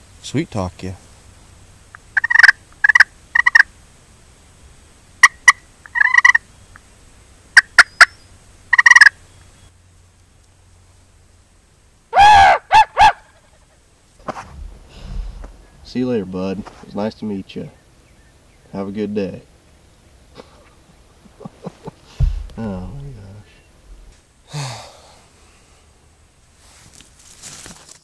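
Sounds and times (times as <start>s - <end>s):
wild turkey calling: 1.9s - 3.7s, 5.2s - 6.9s, 7.5s - 9.7s, 12.1s - 13.9s
turkey gobble: 2.0s - 3.7s, 5.2s - 6.4s, 8.7s - 9.2s, 12.1s - 13.8s.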